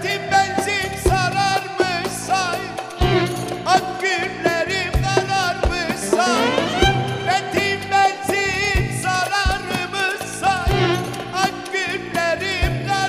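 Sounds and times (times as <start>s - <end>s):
ornamented wavering melody: 6.0s - 7.4s.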